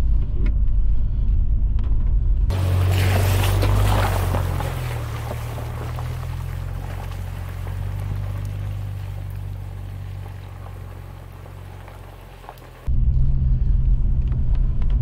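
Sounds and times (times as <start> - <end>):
engine and road noise in cabin: 0.0 - 15.0
car engine driving on gravel: 2.5 - 12.9.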